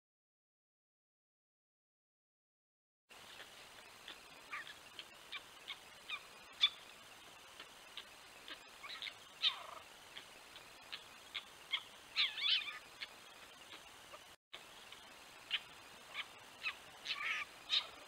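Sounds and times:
fox pups squeaking and whining: 8.5s - 9.8s, 10.9s - 13.1s, 15.5s - 18.0s.

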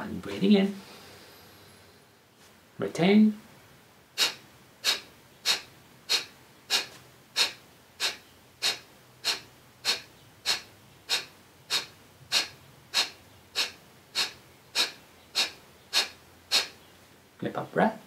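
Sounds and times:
forceful nasal exhalations: 0.7s - 2.2s, 4.2s - 16.8s.

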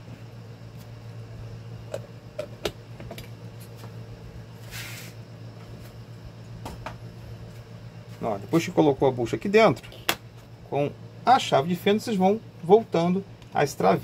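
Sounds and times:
steady low hum: 0.0s - 14.0s
brief scrape: 4.6s - 5.2s.

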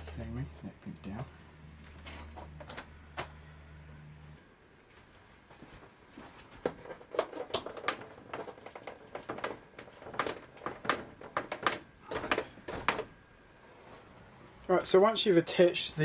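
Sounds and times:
taps and knocks on foam board: 6.6s - 13.1s.

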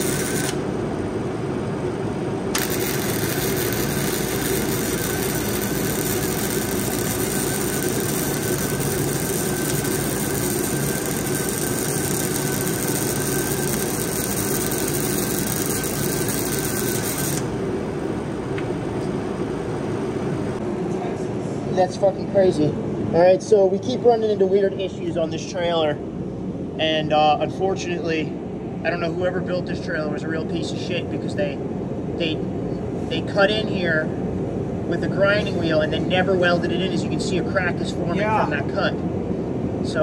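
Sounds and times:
welding arc crackling: 0.0s - 0.8s, 2.5s - 17.8s
engine running: 0.0s - 20.6s.

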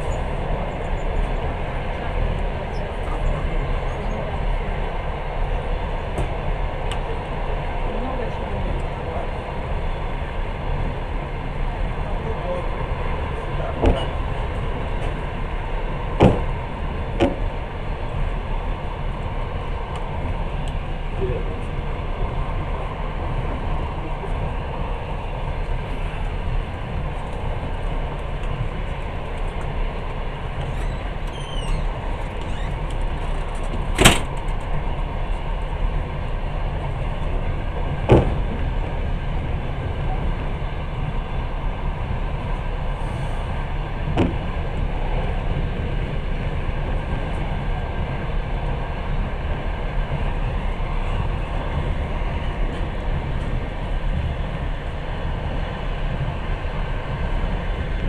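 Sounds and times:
train wheels rumbling on rails: 0.0s - 58.0s
sharp knocks: 16.2s - 16.5s.

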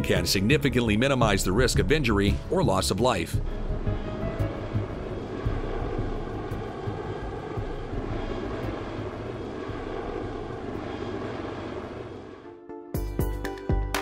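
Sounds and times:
helicopter flying: 0.0s - 13.2s.

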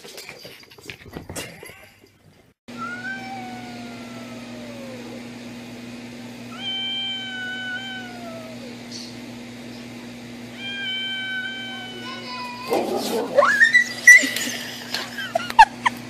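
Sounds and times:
cat yowling: 2.7s - 5.3s, 6.5s - 8.9s, 10.5s - 14.4s.

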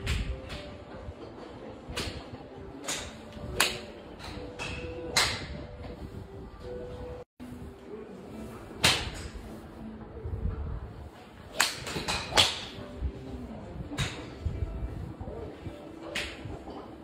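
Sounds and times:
golf clubs striking balls: 0.0s - 6.0s, 8.8s - 9.4s, 11.5s - 12.9s, 13.9s - 14.4s, 16.1s - 16.9s.

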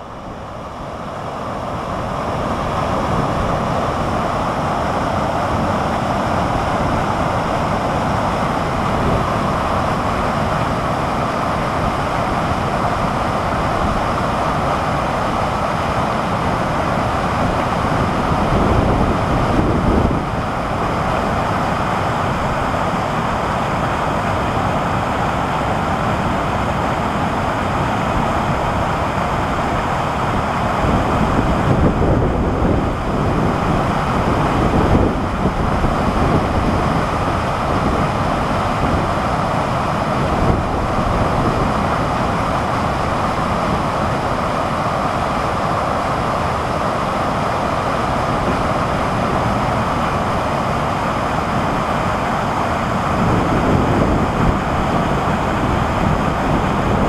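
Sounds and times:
wind buffeting microphone: 16.4s - 22.7s, 28.1s - 45.3s, 47.7s - 57.0s.

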